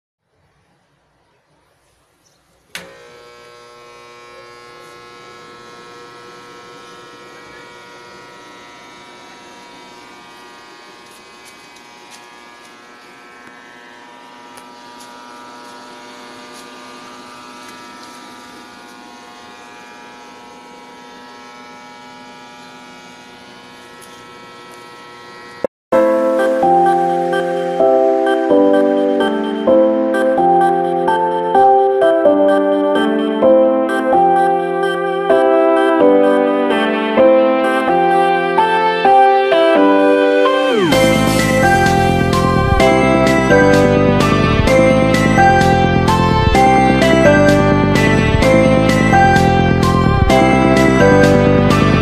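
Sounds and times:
arc welder electrical hum: 2.5 - 25.7.

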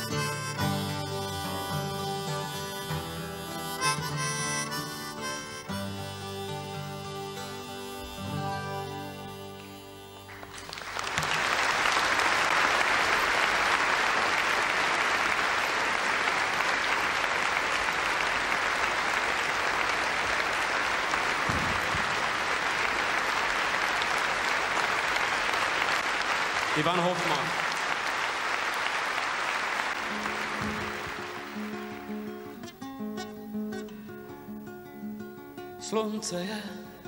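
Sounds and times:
harmonica notes: 0.0 - 11.1
audience applause: 10.2 - 32.6.

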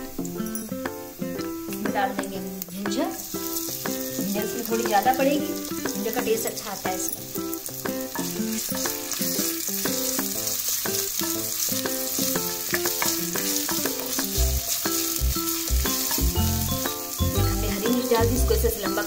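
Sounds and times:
garlic sizzling in hot oil: 0.0 - 19.0.

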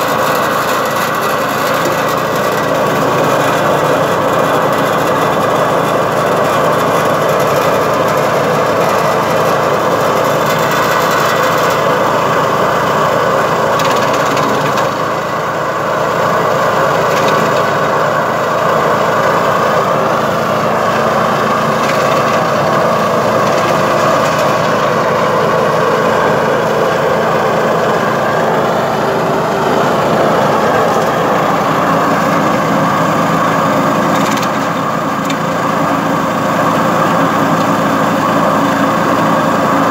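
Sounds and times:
branch chipper engine running: 0.0 - 39.9.

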